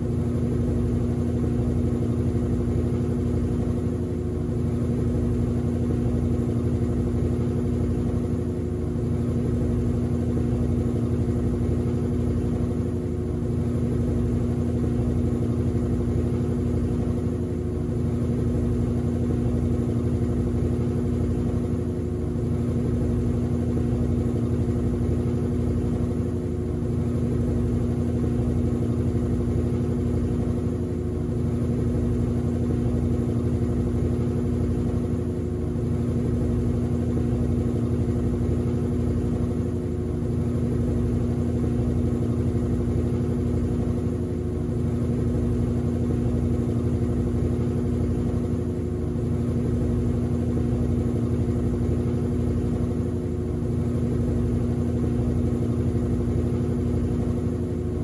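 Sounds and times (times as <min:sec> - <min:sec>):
washing machine spinning: 0:00.0 - 0:58.0.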